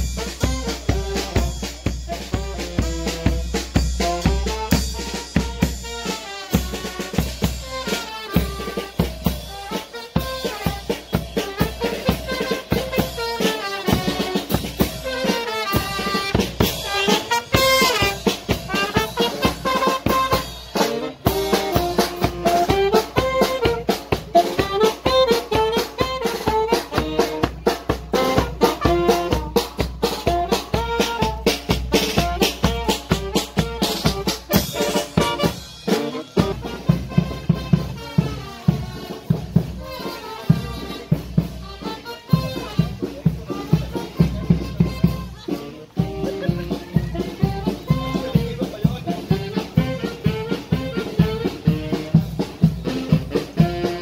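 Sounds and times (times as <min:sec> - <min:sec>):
brass band playing: 0:00.0 - 0:54.0
snare and bass drum beat: 0:00.0 - 0:54.0.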